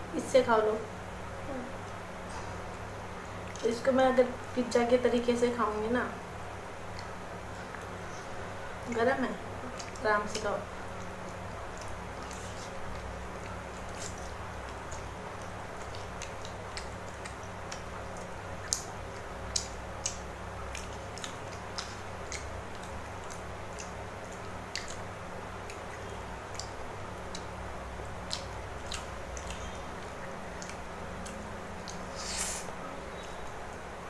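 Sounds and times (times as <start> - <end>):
steady low hum: 0.0 - 34.0
person chewing: 6.9 - 8.2, 9.6 - 10.0, 10.9 - 33.5.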